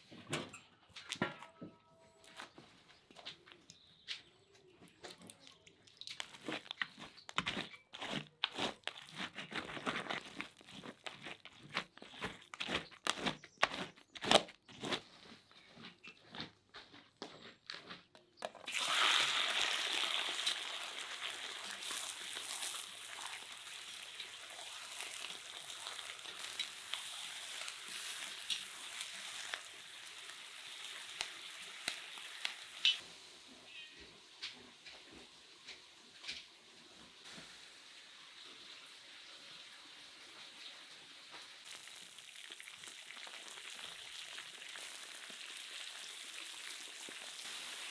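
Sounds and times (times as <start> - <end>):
hot oil crackling and popping: 4.9 - 14.7, 18.5 - 33.3, 34.4 - 47.9
meat sizzling in oil: 18.7 - 33.3, 37.3 - 47.9.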